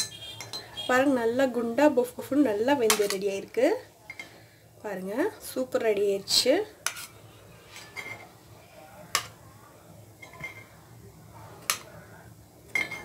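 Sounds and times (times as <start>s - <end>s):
metal spoon clinking on pan: 0.0s - 0.8s, 2.8s - 3.2s, 12.7s - 13.0s.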